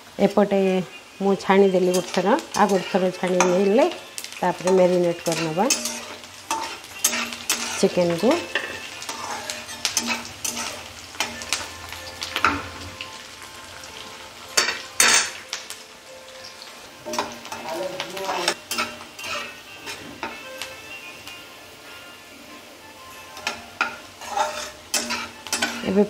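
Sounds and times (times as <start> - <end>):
onions sizzling in hot oil: 0.0 - 26.0
metal spatula scraping pan: 1.7 - 13.0, 14.6 - 15.4, 17.0 - 20.5, 23.3 - 26.0.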